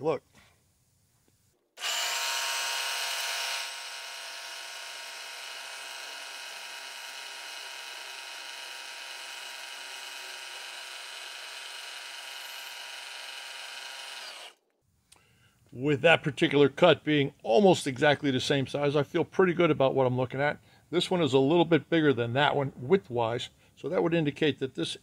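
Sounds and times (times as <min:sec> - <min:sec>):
milling machine spindle whine: 0:01.8 - 0:14.5.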